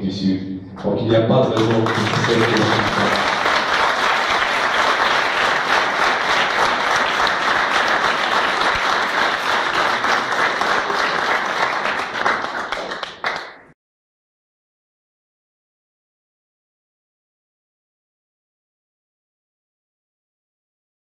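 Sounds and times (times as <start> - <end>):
audience applauding: 1.4 - 13.8.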